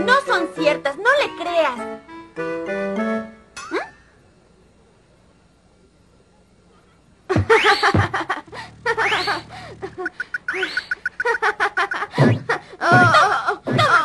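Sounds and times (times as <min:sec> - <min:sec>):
springy cartoon glides: 0:07.4 - 0:13.2
rapid ticks: 0:08.9 - 0:11.4.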